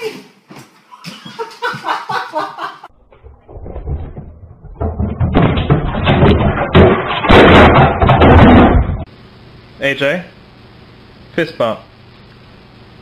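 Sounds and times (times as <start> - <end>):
tv crashing over: 3.8 - 9.1.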